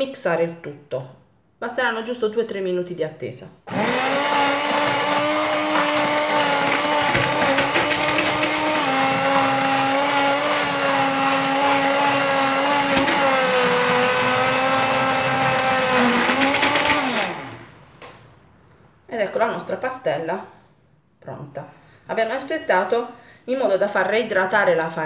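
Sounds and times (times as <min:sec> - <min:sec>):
immersion blender motor whine: 0:03.7 - 0:17.8.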